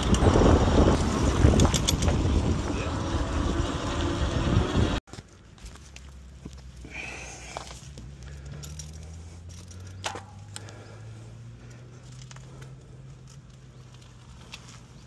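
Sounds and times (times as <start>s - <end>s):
electric bike motor humming: 0.0s - 5.0s
bike clicks and rattles: 0.0s - 15.0s.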